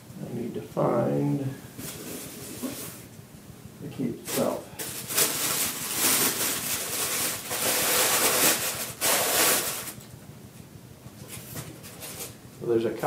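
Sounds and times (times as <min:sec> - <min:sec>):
packaging rustling and crinkling: 0:04.2 - 0:10.0, 0:11.2 - 0:12.4.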